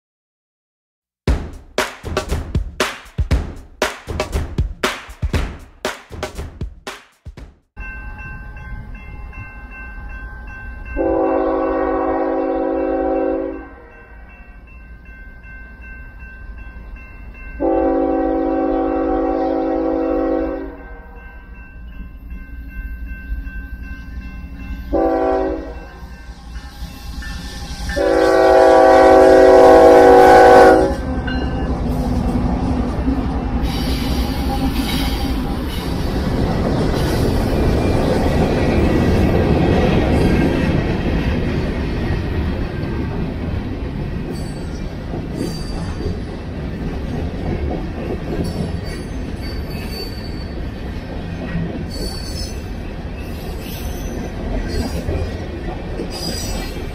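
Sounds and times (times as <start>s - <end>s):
crossing warning bell ringing: 7.8s - 32.0s, 33.0s - 36.4s, 43.9s - 46.8s
locomotive horn blasts: 11.0s - 13.9s, 17.6s - 21.1s, 24.9s - 26.0s, 27.7s - 31.4s
train rumbling: 16.6s - 56.9s.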